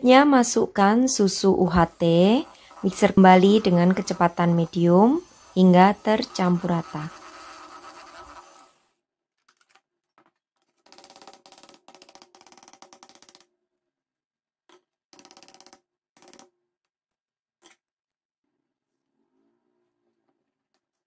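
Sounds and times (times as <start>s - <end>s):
electric hand mixer whirring: 0.6s - 8.9s.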